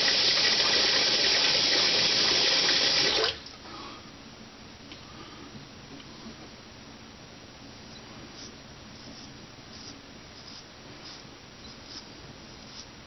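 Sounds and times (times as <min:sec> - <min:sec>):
sink tap running: 0:00.0 - 0:03.4.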